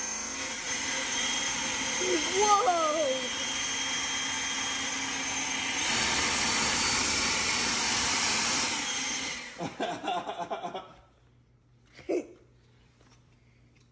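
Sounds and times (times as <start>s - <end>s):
leaf blower running: 0.0s - 9.7s.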